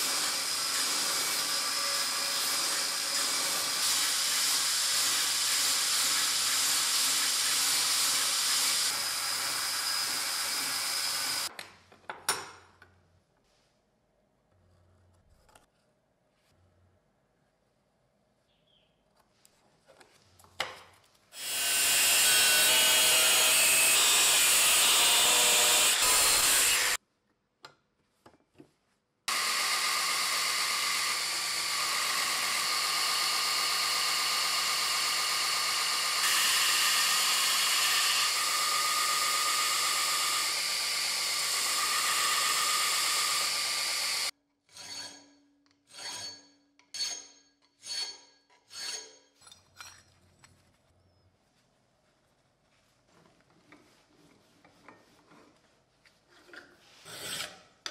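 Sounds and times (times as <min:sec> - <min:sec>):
belt grinder grinding steel: 0:00.0 - 0:11.5, 0:21.4 - 0:27.0, 0:29.3 - 0:45.3
hand file strokes on steel: 0:44.7 - 0:49.3.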